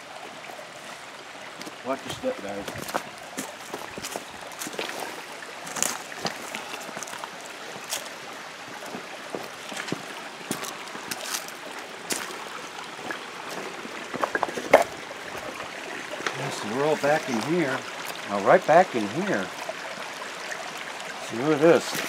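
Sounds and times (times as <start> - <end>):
creek running over stones: 0.0 - 22.0
footsteps on rocks and leaves: 1.6 - 15.6.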